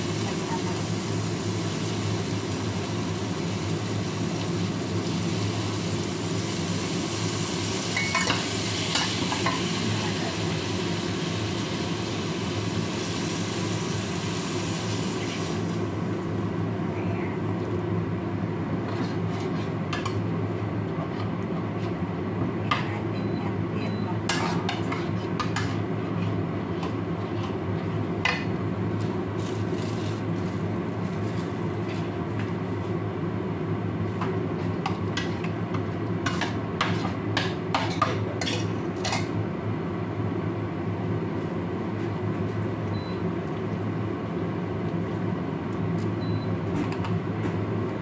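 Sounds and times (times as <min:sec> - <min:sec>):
spatula scraping frying pan: 0:18.9 - 0:19.8, 0:36.3 - 0:37.2.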